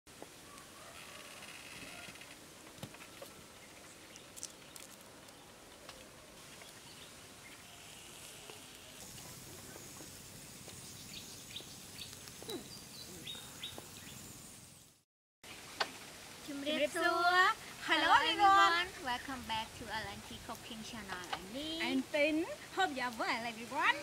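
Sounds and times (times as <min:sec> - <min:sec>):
bird chirps: 0:10.7 - 0:14.9.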